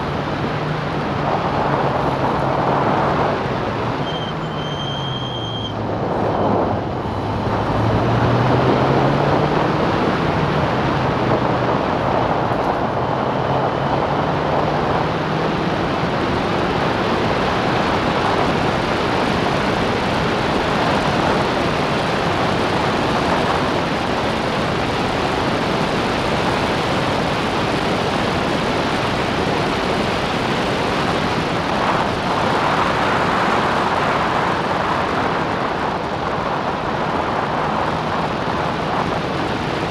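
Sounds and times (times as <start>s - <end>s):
race car engine accelerating: 0.0s - 27.7s
wind noise on microphone: 0.0s - 39.9s.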